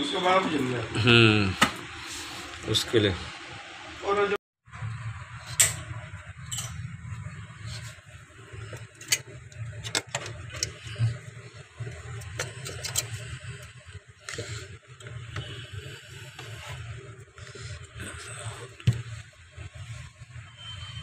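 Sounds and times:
refrigerator low hum: 0.0 - 21.0.

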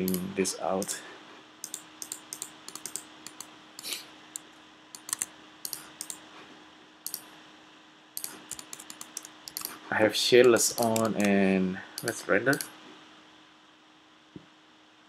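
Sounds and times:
keyboard and mouse clicks: 0.0 - 1.0, 1.6 - 3.5, 4.9 - 6.2, 7.1 - 7.3, 8.2 - 9.8, 10.4 - 11.4, 12.0 - 12.7
faint steady hum: 0.0 - 15.0.

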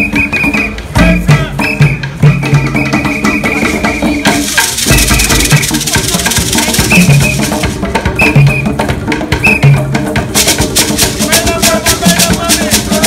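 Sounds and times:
hand drumming on wooden drums: 0.0 - 13.0
shaker rattling: 4.3 - 7.8, 10.3 - 13.0.

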